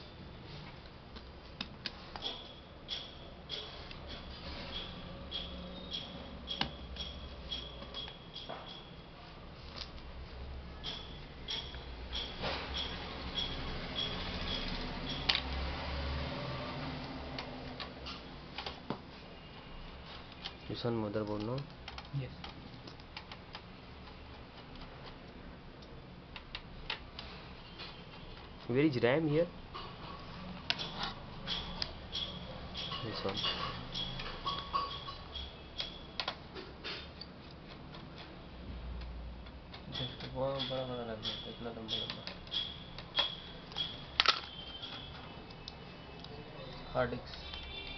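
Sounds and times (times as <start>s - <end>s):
laptop parts clicking and tapping: 0.6s - 9.0s, 9.7s - 47.9s
plastic and metal parts clicking: 39.0s - 46.3s.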